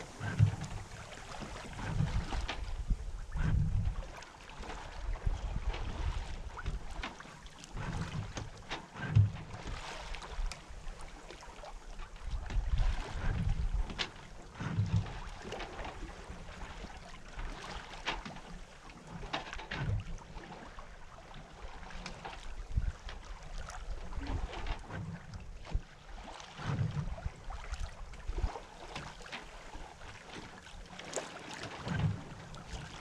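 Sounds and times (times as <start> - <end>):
wind buffeting microphone: 0.0 - 7.0, 12.2 - 15.3
water rushing along hull: 0.0 - 33.0.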